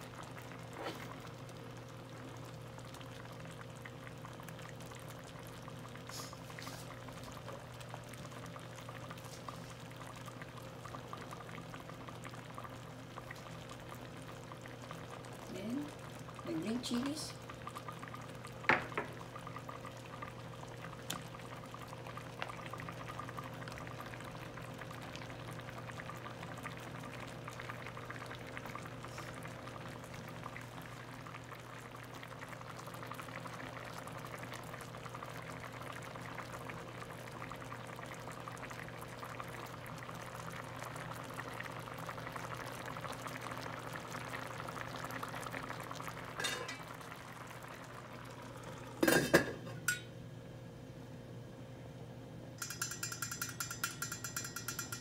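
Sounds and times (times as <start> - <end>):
liquid bubbling in a pan: 0.0 - 51.9, 52.5 - 55.0
metal lid clattering onto pan: 46.4 - 46.8, 49.0 - 50.1.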